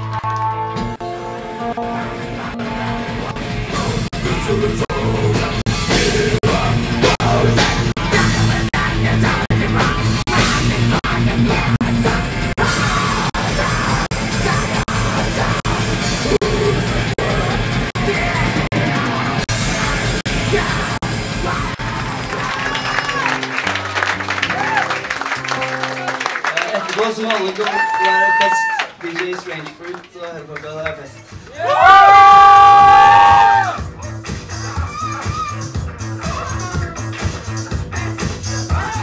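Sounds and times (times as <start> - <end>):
drums: 0.0 - 25.6, 30.5 - 39.0
distorted electric guitar: 0.0 - 26.4
singer yelling: 21.4 - 23.5, 27.4 - 28.9, 34.6 - 37.0, 38.7 - 39.0.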